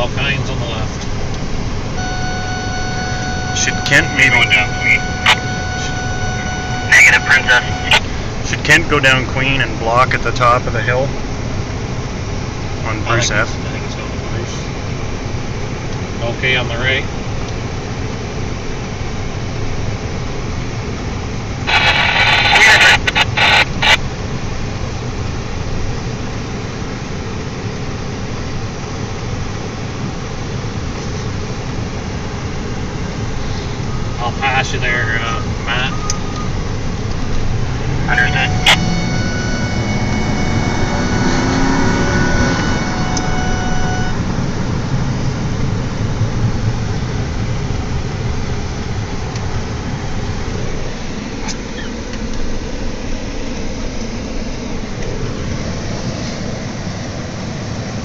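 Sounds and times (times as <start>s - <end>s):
car engine and road noise: 0.0s - 58.0s
faint high steady tone: 1.9s - 8.8s, 33.8s - 44.3s.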